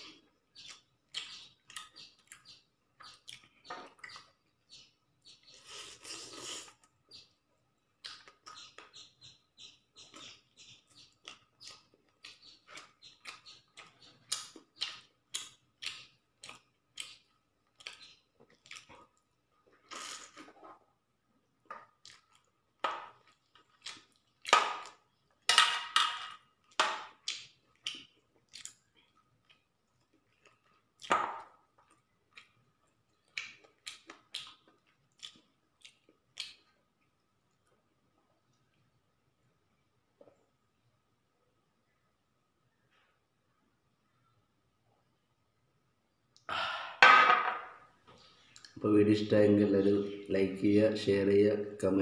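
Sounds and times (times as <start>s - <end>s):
person chewing and lip smacking: 0.0s - 4.4s, 5.2s - 7.2s, 7.9s - 9.0s, 10.1s - 20.6s, 21.7s - 22.6s, 23.2s - 25.5s, 26.6s - 38.8s, 48.4s - 48.8s.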